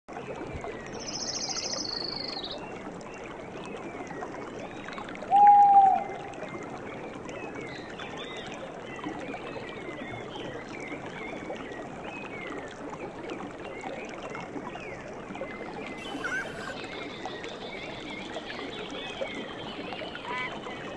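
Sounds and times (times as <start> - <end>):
bird chirps: 16.0 - 16.8.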